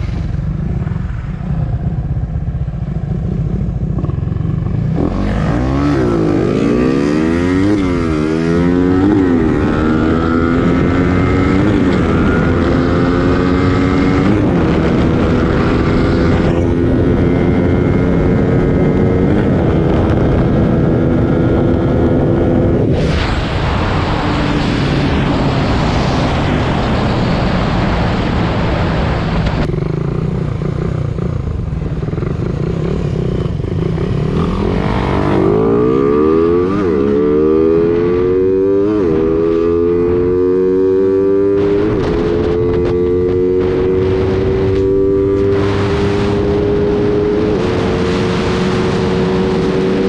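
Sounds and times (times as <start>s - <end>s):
motorcycle engines running: 0.0s - 22.9s, 23.9s - 50.0s
loud rushing noise: 22.6s - 29.7s.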